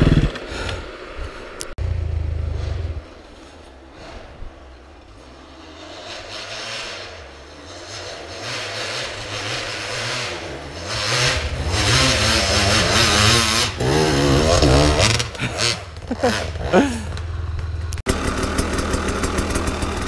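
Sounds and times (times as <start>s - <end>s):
dirt bike engine revving: 0.0s - 0.5s, 4.9s - 20.0s.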